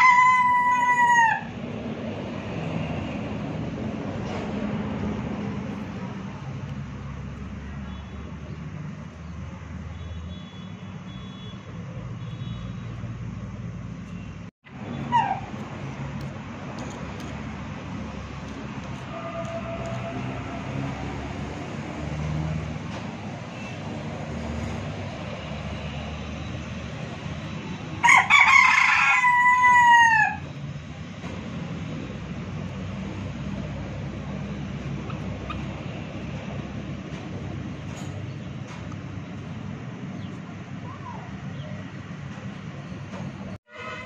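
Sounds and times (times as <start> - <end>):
chicken squawk: 0.0 - 1.6, 28.0 - 30.4
rooster crowing: 0.0 - 1.6, 28.0 - 30.5.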